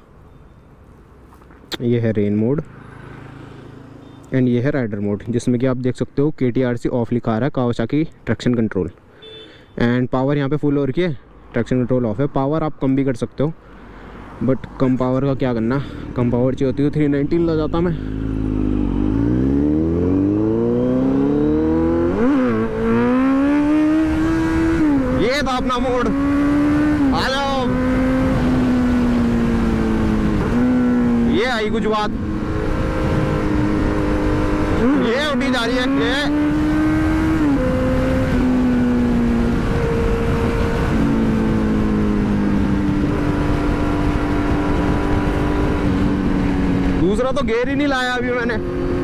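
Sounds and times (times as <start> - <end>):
motorcycle engine running hard: 17.9 - 25.4
motorcycle engine accelerating: 17.9 - 49.0
wind rush: 32.0 - 34.9, 36.2 - 47.0.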